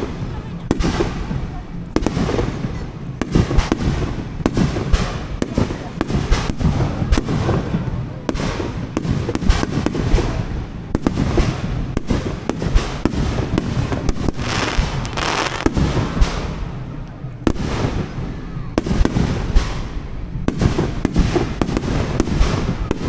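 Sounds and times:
firework crackling: 0:00.0 - 0:23.0
firework shells bursting: 0:14.2 - 0:16.6.

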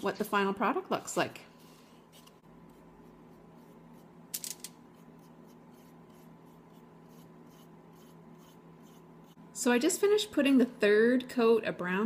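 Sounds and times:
steady low hum: 0:00.0 - 0:12.0
paintbrush scratchy brushing: 0:01.0 - 0:04.2, 0:04.9 - 0:09.4.

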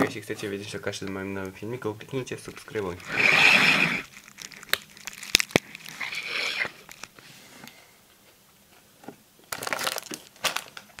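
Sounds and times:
plastic packaging crinkling: 0:02.5 - 0:07.2, 0:09.5 - 0:11.0.

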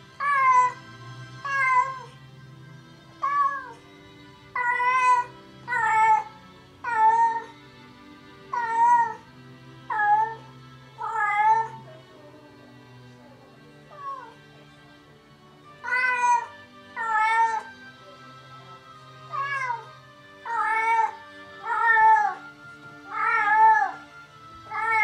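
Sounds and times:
faint music: 0:00.0 - 0:25.0
cat meowing: 0:00.2 - 0:02.2, 0:03.2 - 0:03.8, 0:04.6 - 0:07.6, 0:08.5 - 0:09.2, 0:09.9 - 0:11.8, 0:13.9 - 0:14.4, 0:15.8 - 0:17.7, 0:19.2 - 0:22.4, 0:23.0 - 0:24.0, 0:24.6 - 0:25.0.

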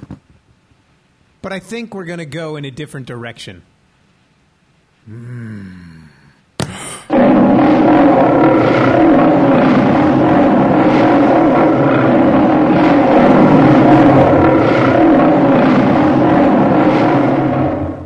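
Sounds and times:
man roaring: 0:05.1 - 0:06.4.

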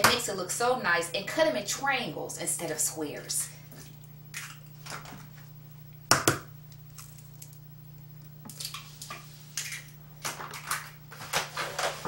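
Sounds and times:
eggs tapped on bowl: 0:06.1 - 0:06.5.

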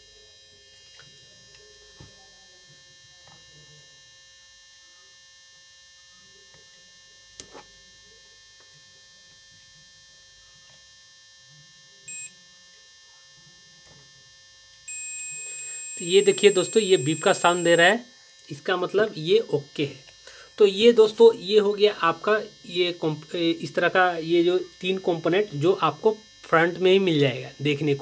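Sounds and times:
multimeter short beep: 0:12.1 - 0:12.3, 0:14.9 - 0:17.9.

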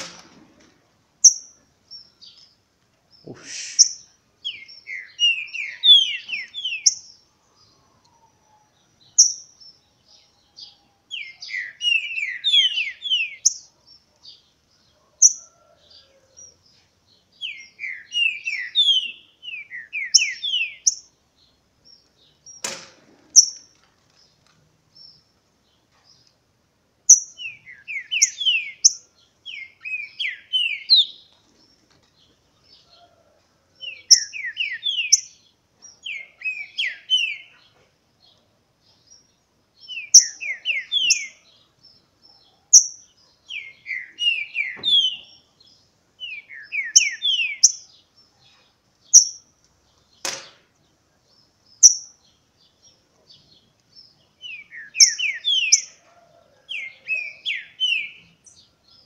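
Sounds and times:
birds singing quick whistles: 0:03.2 - 0:07.1, 0:42.3 - 0:45.4, 0:46.2 - 0:47.9, 0:51.8 - 0:52.2, 0:54.4 - 0:56.0, 0:56.7 - 0:58.3
sharp knock: 0:50.2 - 0:50.6.

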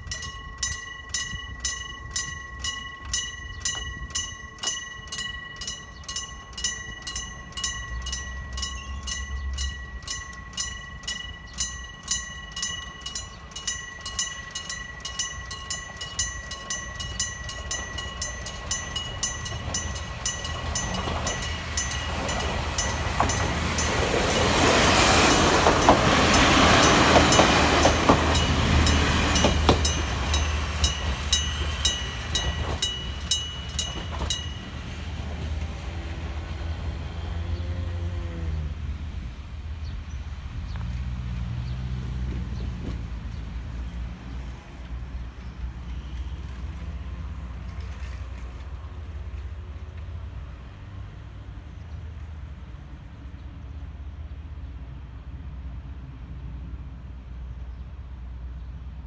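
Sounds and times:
level crossing bell ringing: 0:00.0 - 0:24.3, 0:25.3 - 0:35.2
wheels clicking over rail joints: 0:00.0 - 0:37.8, 0:42.2 - 0:50.4
diesel railcar passing: 0:00.0 - 0:59.0.

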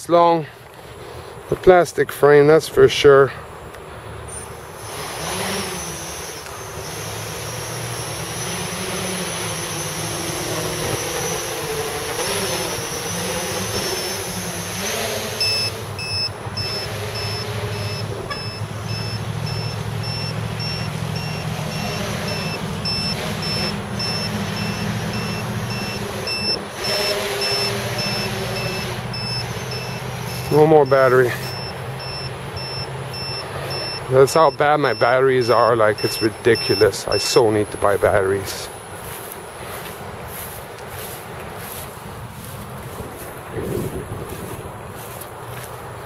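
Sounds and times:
drone motors whining: 0:04.2 - 0:46.0
short high electronic beeps: 0:15.4 - 0:37.8.

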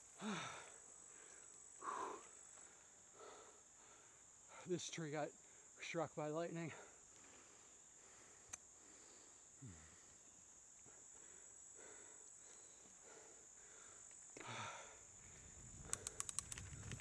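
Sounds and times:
high-pitched insect chorus: 0:00.0 - 0:17.0
click: 0:15.8 - 0:17.0.

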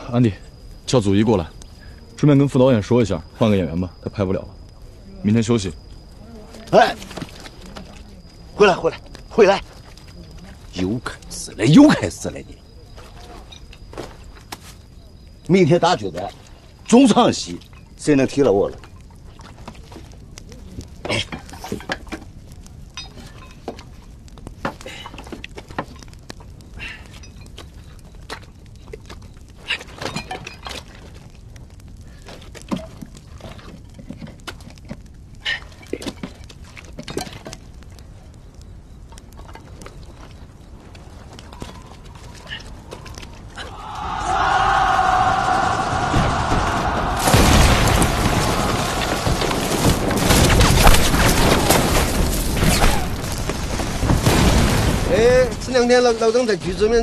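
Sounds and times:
scattered crackles: 0:00.0 - 0:57.0
explosions: 0:44.2 - 0:55.9.

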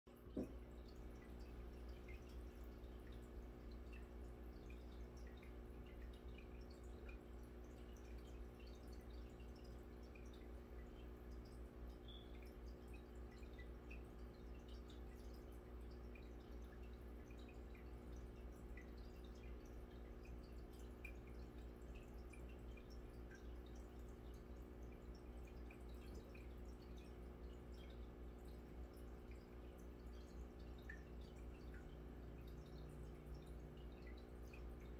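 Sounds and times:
aquarium bubbles popping: 0:00.1 - 0:34.9.

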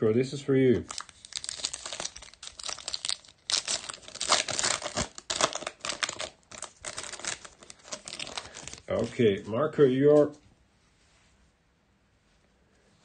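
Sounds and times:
foil wrapper crinkling and tearing: 0:00.8 - 0:09.2.

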